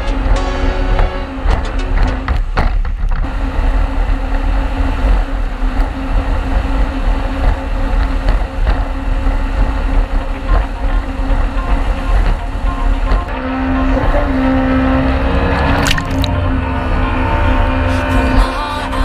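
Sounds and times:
wind buffeting microphone: 0.0 - 14.4
rushing wind: 0.0 - 18.5
jet ski engine drone: 0.0 - 19.0.

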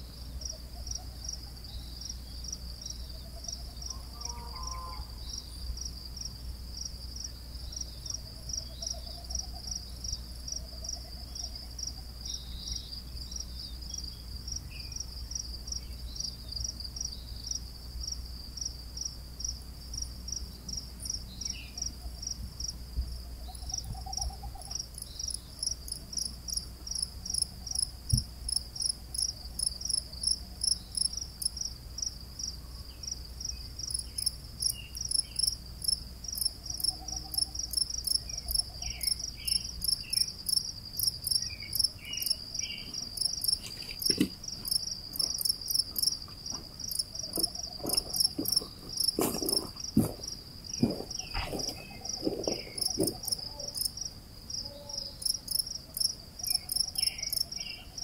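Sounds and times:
crickets chirping: 0.0 - 58.0
low knocks and thumps: 43.8 - 53.5.

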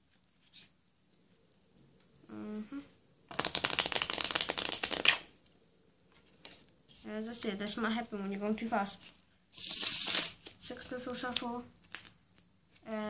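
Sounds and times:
playing cards riffle shuffled: 3.3 - 5.4, 9.0 - 12.9.

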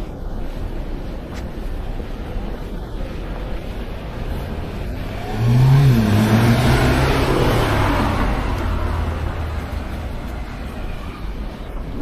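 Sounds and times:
tyre and road noise: 0.0 - 12.0
vehicle engine accelerating: 4.2 - 11.6.

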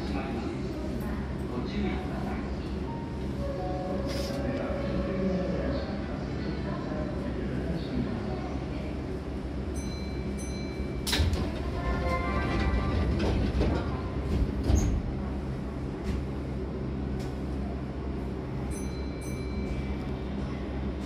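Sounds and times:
standing train hum: 0.0 - 21.0
train doors sliding: 11.0 - 15.4.

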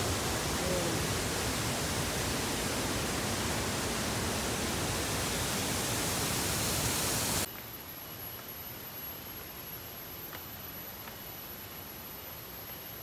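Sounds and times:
water rushing over boulders: 0.0 - 7.5.

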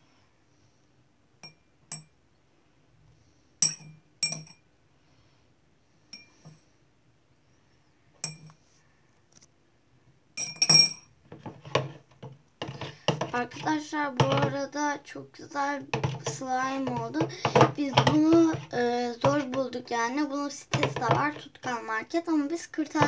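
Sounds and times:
metal teaspoon clinking against glass: 3.6 - 4.6, 8.2 - 8.5, 10.4 - 11.1.

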